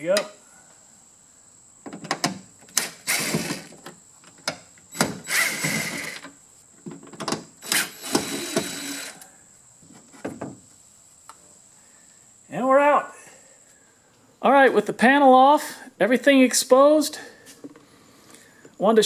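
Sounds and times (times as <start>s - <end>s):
cordless drill running: 2.8s - 3.7s, 5.0s - 6.2s, 7.6s - 9.2s.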